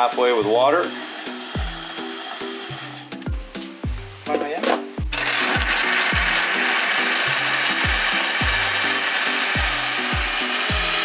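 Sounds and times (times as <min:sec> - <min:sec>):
background music with a beat: 0:00.0 - 0:11.0
blender grinding: 0:00.7 - 0:03.1, 0:05.1 - 0:11.0.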